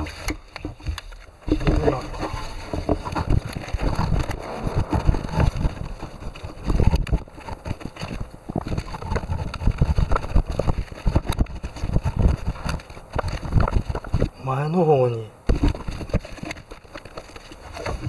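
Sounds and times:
sleeve rubbing against microphone: 1.5s - 14.4s.

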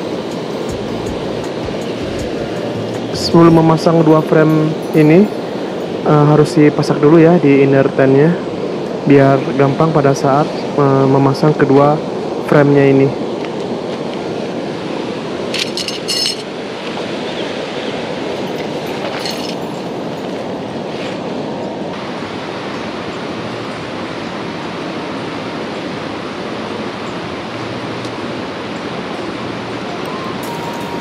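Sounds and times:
river rapids rushing: 0.0s - 31.0s
metal tent stakes clinking: 15.5s - 16.5s, 18.4s - 20.5s, 30.4s - 31.0s.

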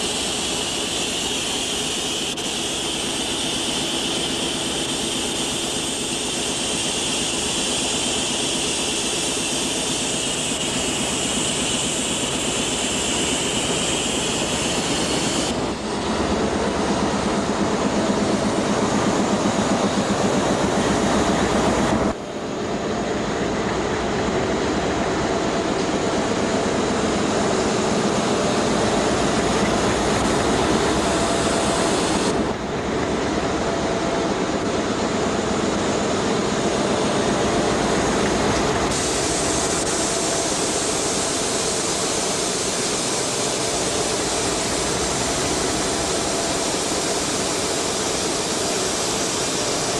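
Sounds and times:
diesel locomotive rumbling: 9.7s - 40.4s.

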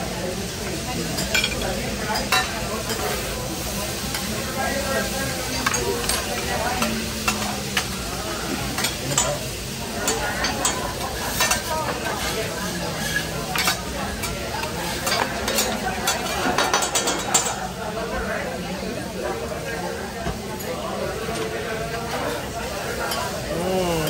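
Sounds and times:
vegetables sizzling on griddle: 0.0s - 24.0s
metal spatulas scraping and clacking: 10.0s - 17.6s.

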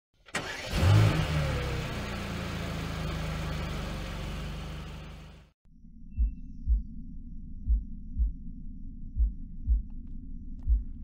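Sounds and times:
car engine starting and idling: 0.2s - 5.6s.

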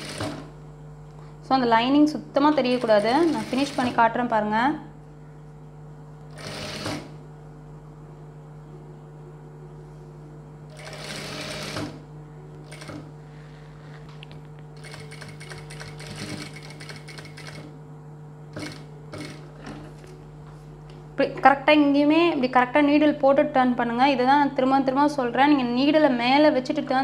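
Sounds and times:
sewing machine stitching: 0.0s - 0.5s, 2.7s - 4.0s, 6.3s - 7.1s, 10.7s - 12.0s, 12.7s - 13.1s, 14.8s - 17.7s, 18.6s - 20.0s
steady low hum: 0.0s - 27.0s.

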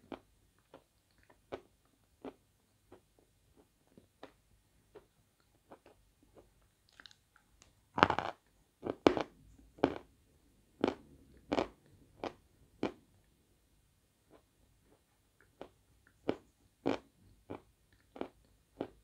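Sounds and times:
chalk crunching while chewed: 5.7s - 7.2s.

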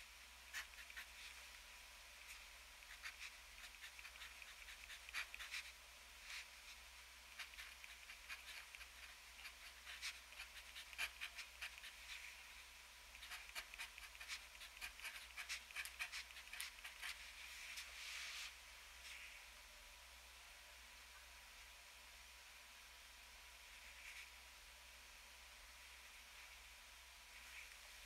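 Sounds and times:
fountain pen nib scratching paper: 2.9s - 5.7s, 7.4s - 12.2s, 13.2s - 17.2s.

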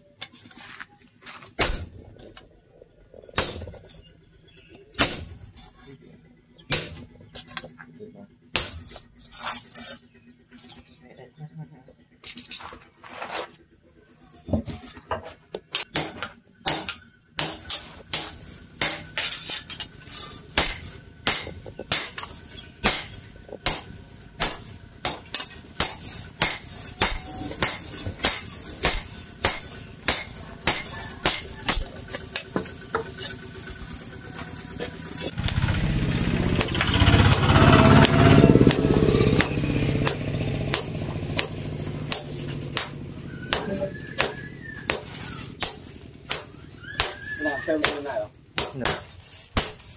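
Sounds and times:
hammer striking steel blade: 1.6s - 2.0s, 3.4s - 4.1s, 5.0s - 5.8s, 6.7s - 7.7s, 8.6s - 10.0s, 15.8s - 33.9s, 36.5s - 49.9s.

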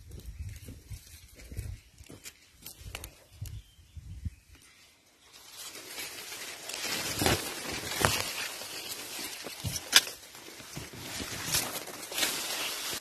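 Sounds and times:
leaves and grass rustling: 0.0s - 13.0s
stalks snapping: 6.7s - 10.3s.

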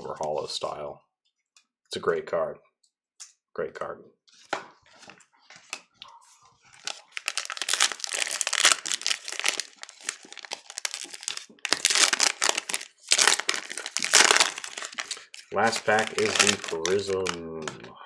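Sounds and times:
wrapper tearing and crinkling: 6.6s - 17.8s.

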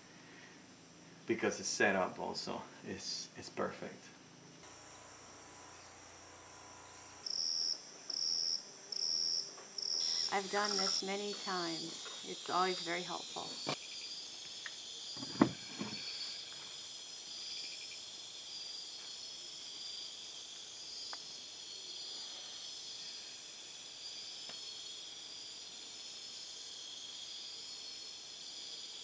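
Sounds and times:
crickets and insects trilling: 0.0s - 29.0s.

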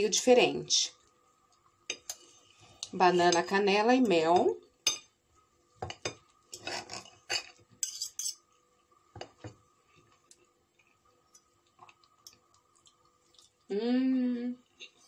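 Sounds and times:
knife and fork scraping a plate: 6.5s - 8.4s.

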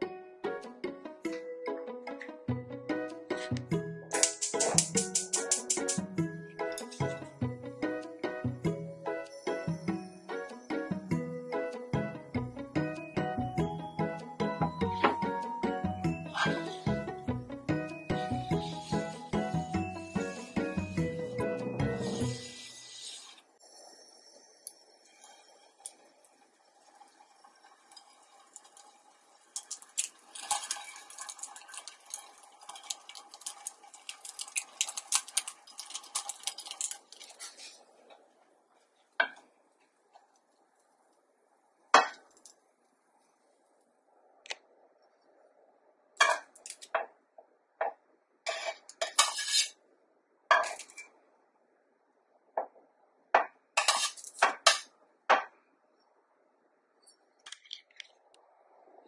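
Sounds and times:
food crackling in frying pan: 25.0s - 41.2s, 46.2s - 47.0s, 53.8s - 54.9s.

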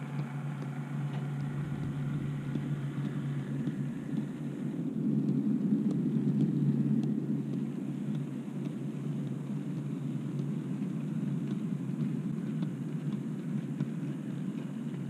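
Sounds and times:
wheels clicking over rail joints: 0.0s - 5.4s
model wagon wheels rumbling on rails: 0.0s - 15.0s.

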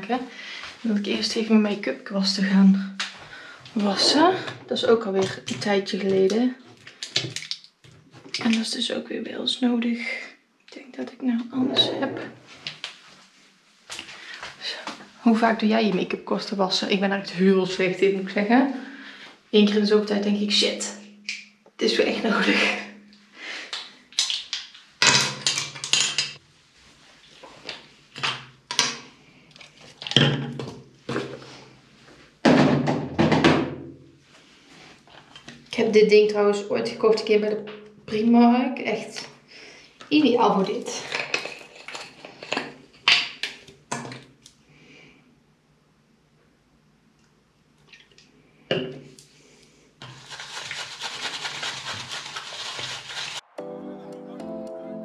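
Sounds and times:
containers clattering: 40.9s - 42.8s
brushes scrubbing: 50.0s - 53.4s
tap running with water splashing: 50.0s - 53.4s.

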